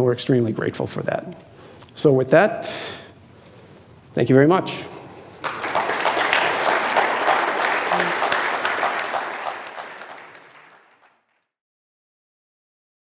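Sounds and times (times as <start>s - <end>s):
audience applauding: 5.4s - 11.5s.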